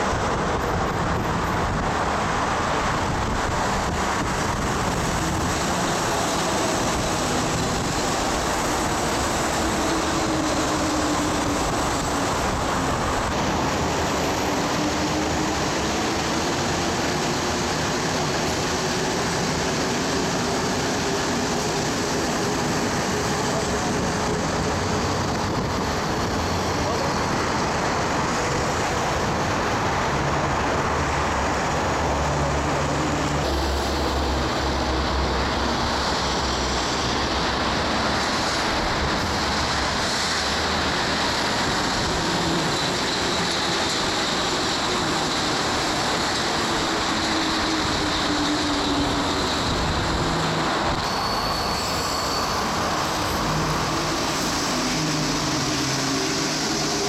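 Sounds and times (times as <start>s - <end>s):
metro train rumbling: 0.0s - 57.0s
faint high whine: 51.0s - 53.8s.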